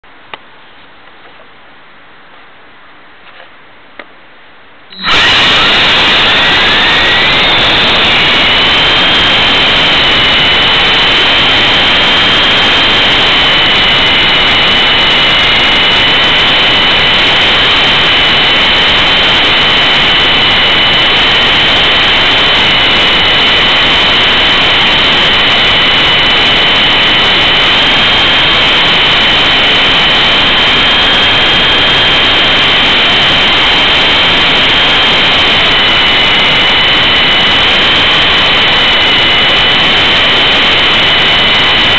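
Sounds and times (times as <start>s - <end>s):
high motor whines: 4.9s - 41.9s
helicopter blades rushing: 5.0s - 11.3s.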